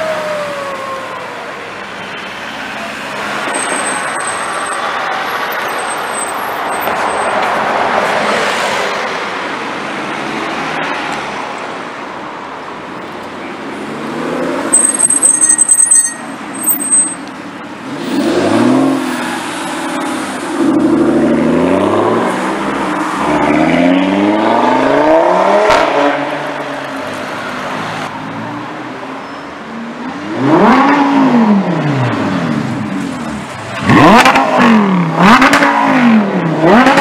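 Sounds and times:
engine revving: 30.3 - 32.5, 33.8 - 37.0.

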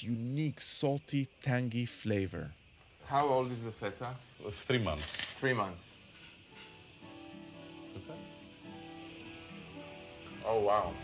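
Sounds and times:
insect chirring: 0.0 - 11.0
soft music of sustained notes: 6.6 - 11.0.

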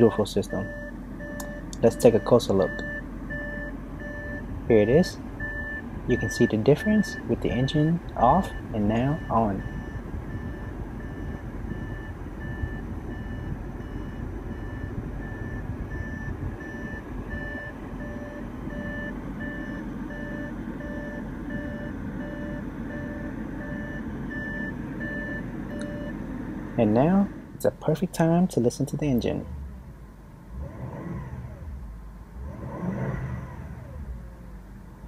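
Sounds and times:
car warning chime beeping: 0.0 - 26.2
car engine idling: 0.0 - 35.0.

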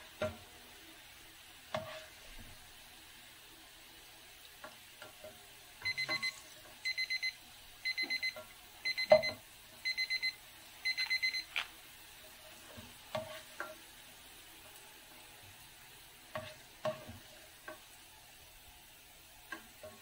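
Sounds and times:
faint sizzle of frying: 0.0 - 20.0
timer alarm beeping: 5.8 - 11.5
spatula knocking against pan: 16.3 - 17.8.

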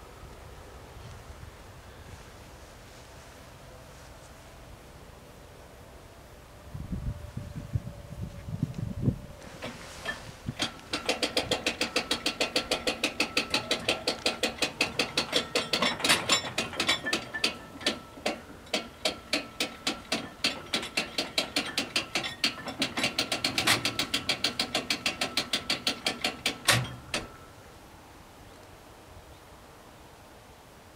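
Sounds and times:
barrier knocking to rest: 9.6 - 27.3.

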